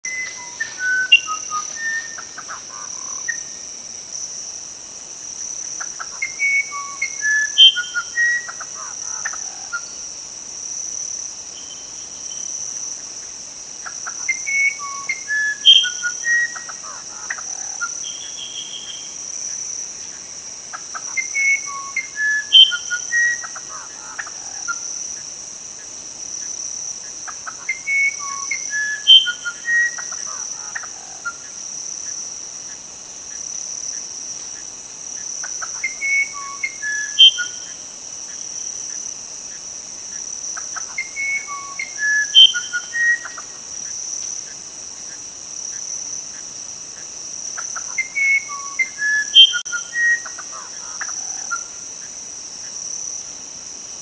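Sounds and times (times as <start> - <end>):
songbird whistling: 0.0 - 2.5, 6.2 - 8.6, 14.3 - 16.7, 17.8 - 19.2, 21.2 - 23.6, 27.7 - 30.2, 35.7 - 37.8, 41.0 - 43.4, 47.8 - 50.4
shrill insect chorus: 0.0 - 54.0.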